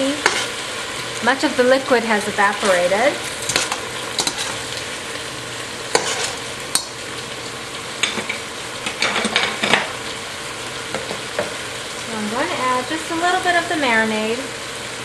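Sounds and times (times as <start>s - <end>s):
chicken sizzling in a pot: 0.0s - 15.0s
metal tongs clicking against pot: 6.7s - 7.0s.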